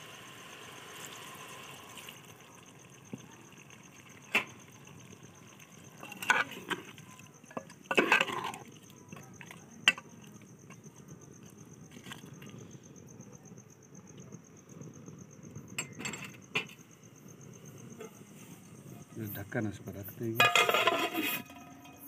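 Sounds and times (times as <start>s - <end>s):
insects trilling: 0.0s - 22.0s
metal ladle clanking pot: 7.5s - 9.2s, 20.4s - 22.0s.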